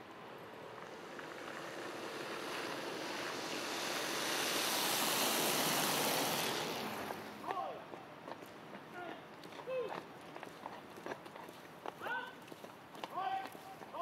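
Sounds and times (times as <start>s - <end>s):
car tyres hissing on wet road: 0.2s - 7.4s.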